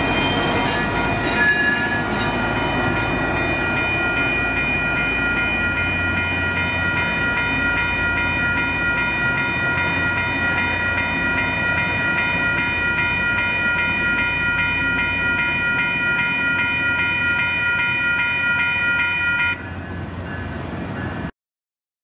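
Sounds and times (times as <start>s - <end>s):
crossing warning bell ringing: 0.0s - 21.3s
diesel railcar rumble: 0.0s - 21.3s
traffic: 0.0s - 21.3s.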